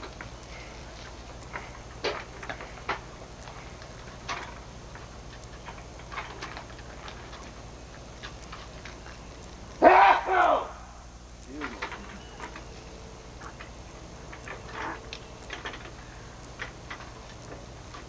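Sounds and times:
light clicks and taps: 0.0s - 9.7s
steady low hum: 0.0s - 18.0s.

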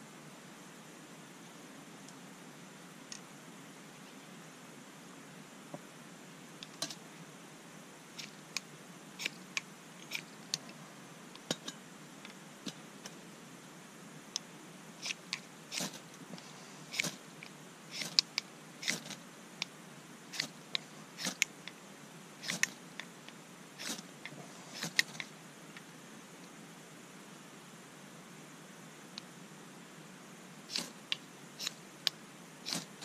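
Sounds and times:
ferro rod scrapes: 23.8s - 25.3s, 32.6s - 33.0s.

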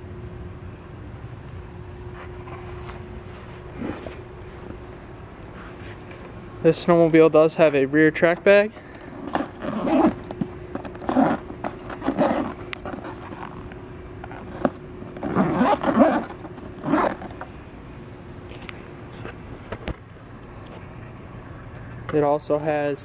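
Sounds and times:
zipper being pulled: 3.7s - 4.2s, 8.8s - 17.5s
bag handling: 8.2s - 17.5s
zipper pull clicks: 8.8s - 17.5s.

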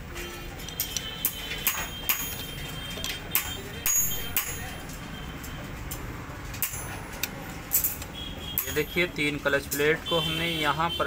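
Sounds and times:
metallic clicks and clinks: 0.6s - 9.0s.

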